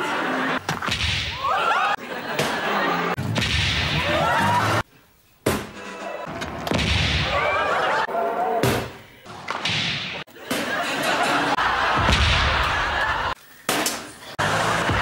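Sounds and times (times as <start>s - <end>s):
voices or laughter: 1.3s - 3.2s, 7.3s - 8.6s, 10.3s - 13.4s.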